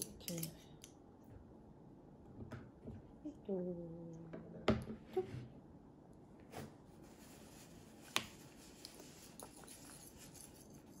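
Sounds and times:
cutlery clicking on ceramic bowl: 0.0s - 0.6s.

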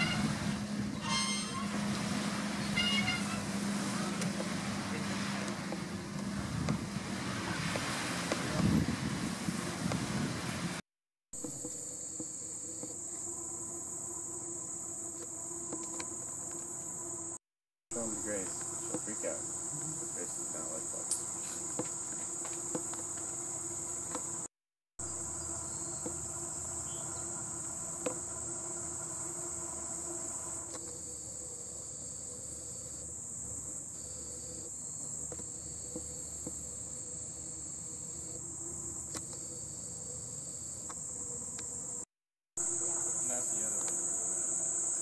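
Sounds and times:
low steady buzz: 0.0s - 10.7s, 11.4s - 17.4s, 18.0s - 45.0s
insects trilling: 11.4s - 17.4s, 18.0s - 45.0s.

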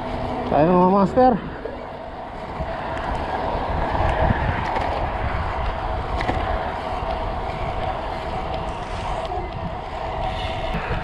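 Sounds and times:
tyres rolling on pavement: 0.0s - 11.0s
wind buffeting microphone: 0.0s - 11.0s.

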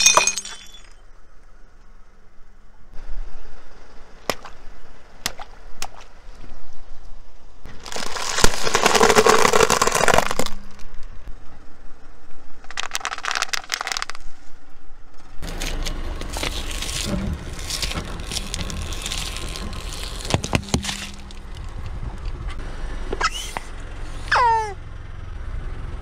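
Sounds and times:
bubble wrap popping: 7.7s - 10.6s, 15.4s - 21.6s
tyre crushing dry pasta: 7.7s - 10.8s, 12.7s - 14.2s, 15.4s - 21.9s
sharp cracks: 7.7s - 11.1s, 12.6s - 14.3s.

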